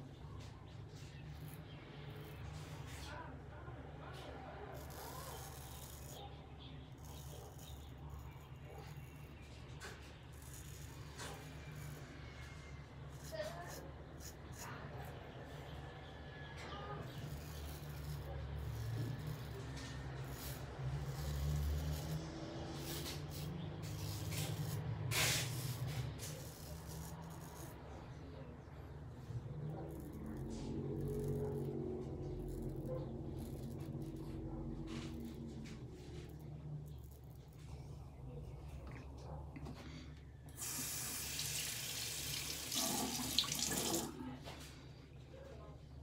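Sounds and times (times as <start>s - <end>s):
razor scraping stubble: 0.0s - 3.3s, 4.1s - 39.2s
tap water running into sink: 40.6s - 44.1s.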